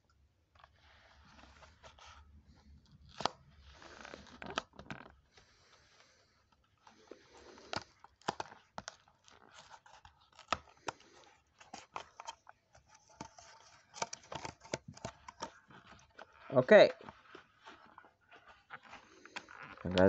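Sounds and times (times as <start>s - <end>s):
cardboard box opened by hand: 6.5s - 20.0s.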